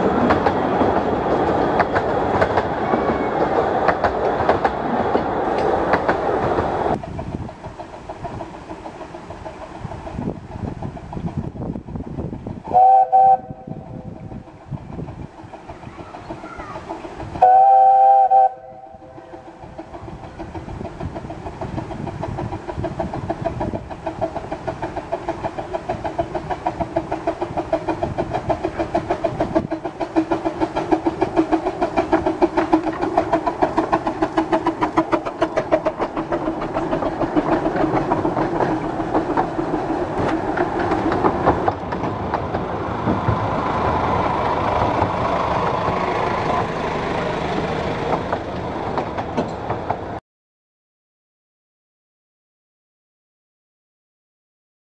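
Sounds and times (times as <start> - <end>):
steam locomotive chuffing: 0.0 - 50.2
steam locomotive whistle: 12.7 - 14.1, 17.4 - 19.6.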